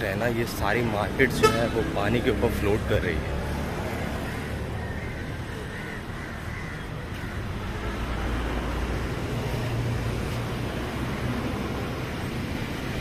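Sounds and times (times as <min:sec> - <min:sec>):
low rumble of city traffic: 0:00.0 - 0:13.0
crow cawing: 0:04.1 - 0:07.4.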